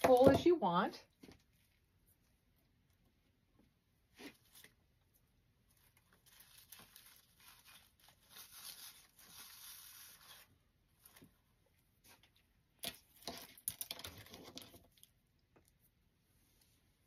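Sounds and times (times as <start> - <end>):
stems scraping into a wreath: 6.2 - 10.5.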